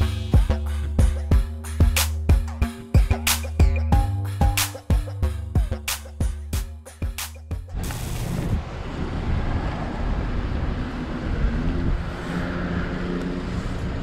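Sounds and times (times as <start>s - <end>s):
music: 0.0s - 7.8s
car engine and tyres rumbling: 7.6s - 14.0s.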